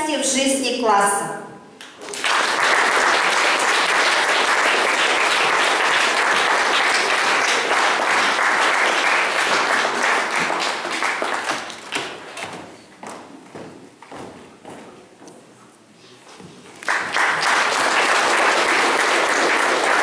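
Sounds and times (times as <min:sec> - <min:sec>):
audience applauding: 0:01.8 - 0:12.4, 0:16.7 - 0:20.0.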